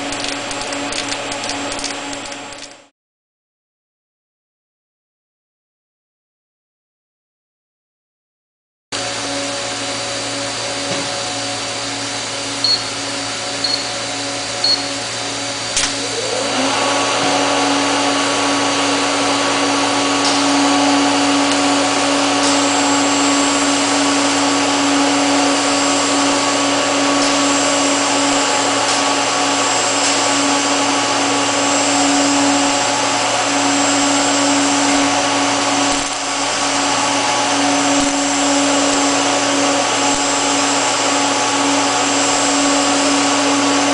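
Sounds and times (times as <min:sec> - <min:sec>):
welding arc hissing: 0:00.0 - 0:02.9, 0:18.3 - 0:43.9
welding arc striking crack: 0:00.0 - 0:02.9, 0:35.8 - 0:36.3, 0:38.0 - 0:38.3
welding station hum: 0:00.0 - 0:02.9, 0:09.0 - 0:43.9
brief rising whine: 0:09.0 - 0:43.9
short electronic beeps: 0:12.6 - 0:12.9, 0:13.6 - 0:13.9, 0:14.6 - 0:14.9.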